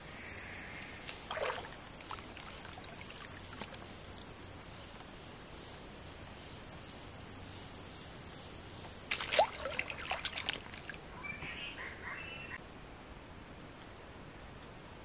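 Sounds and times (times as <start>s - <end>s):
insects droning: 0.0s - 14.4s
sharp knocks and splashes: 1.1s - 4.2s, 9.1s - 11.0s.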